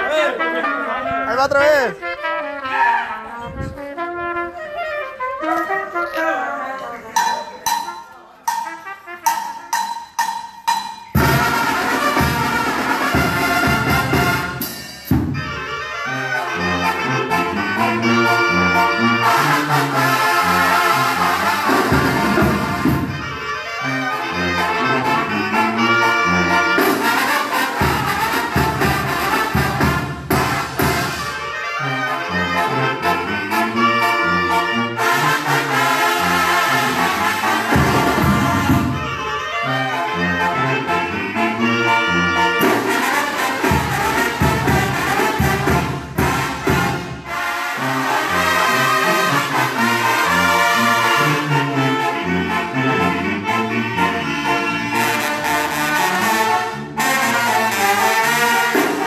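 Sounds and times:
trumpets and trombones: 0:00.0 - 0:59.0
tuba bass line: 0:00.0 - 0:59.0
steady beat: 0:07.2 - 0:15.5.

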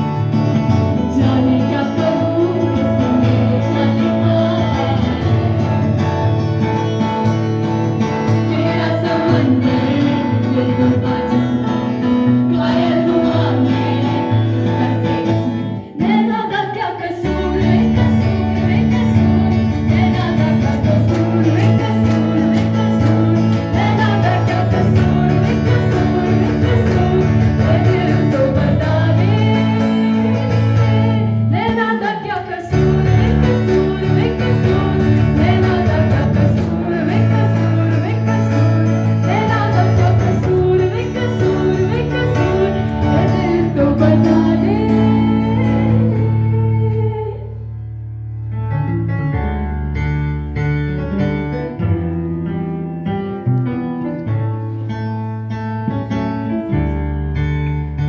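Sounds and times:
electric guitar: 0:00.0 - 0:58.0
keyboard: 0:00.0 - 0:58.0
girls singing into microphones: 0:00.9 - 0:06.1, 0:08.3 - 0:47.7
steady bass line: 0:17.2 - 0:31.9.

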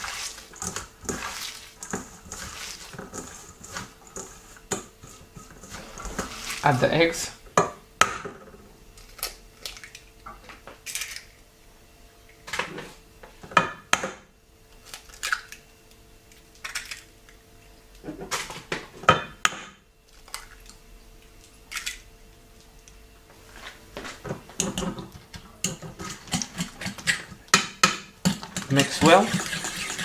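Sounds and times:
eggs cracking against metal bowl: 0:16.3 - 0:17.4, 0:21.4 - 0:22.1, 0:24.6 - 0:30.0.

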